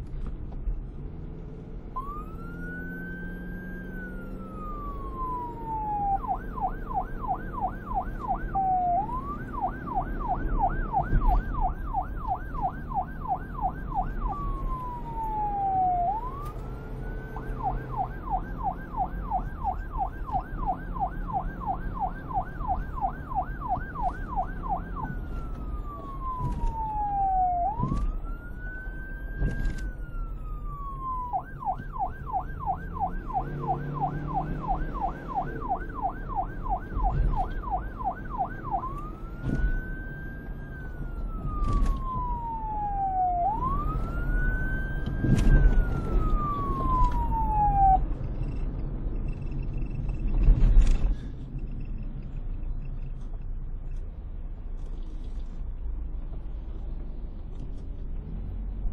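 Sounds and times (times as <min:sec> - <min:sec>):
police siren yelping and wailing: 0:02.0 - 0:50.1
low background rumble: 0:39.0 - 0:58.9.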